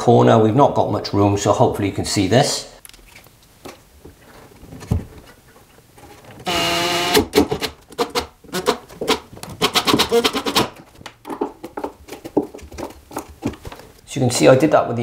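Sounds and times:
impact driver motor whining: 6.4s - 7.4s
impact driver hammering: 6.5s - 7.6s.

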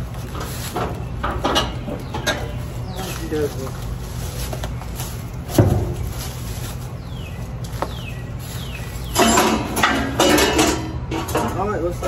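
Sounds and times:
falling bird chirps: 4.8s - 9.7s
sheet-metal shroud rattling and scraping: 9.0s - 12.0s.

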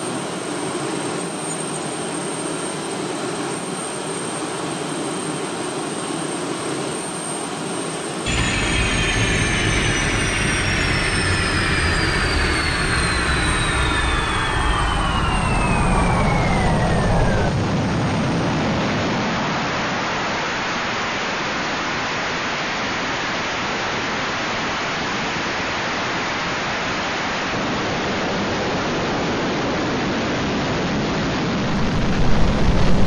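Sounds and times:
jet engines rushing: 0.0s - 20.0s, 30.6s - 33.0s
falling whine: 6.8s - 19.8s, 31.1s - 33.0s.

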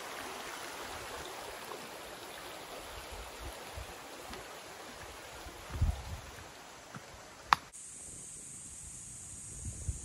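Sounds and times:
stream running over stones: 0.0s - 7.8s.

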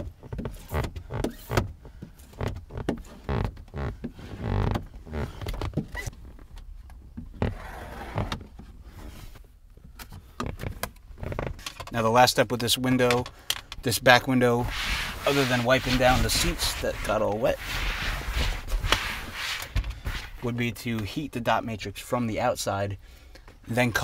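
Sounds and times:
squeegee rubbing on wet glass: 14.6s - 20.4s.

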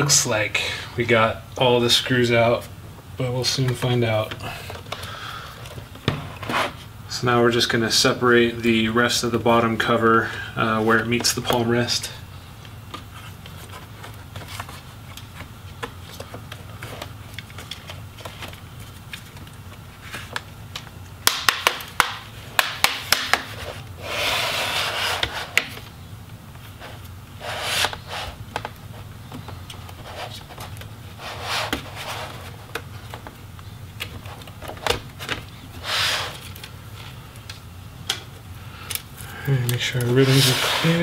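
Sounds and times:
plastic scraping: 39.7s - 41.0s.

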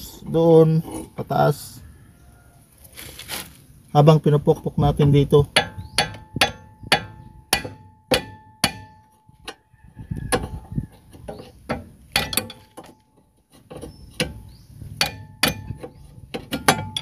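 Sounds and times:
hammer striking metal: 5.5s - 9.2s, 15.0s - 15.8s.

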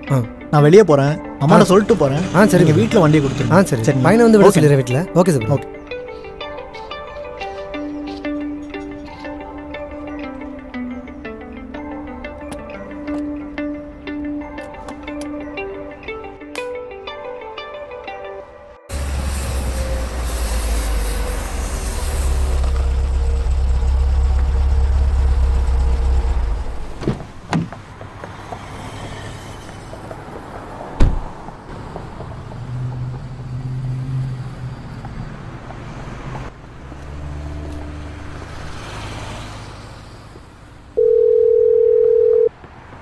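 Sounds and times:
highway traffic rumble: 0.0s - 16.5s, 18.9s - 43.0s
car door shutting: 26.9s - 27.8s, 31.0s - 31.3s
phone tone: 41.0s - 42.5s.

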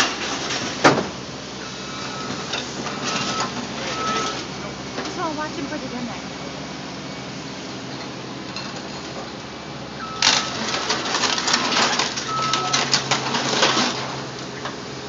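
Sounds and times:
scrap metal clattering and crunching: 0.0s - 1.2s, 8.0s - 15.0s
diesel engine humming: 0.0s - 15.0s.

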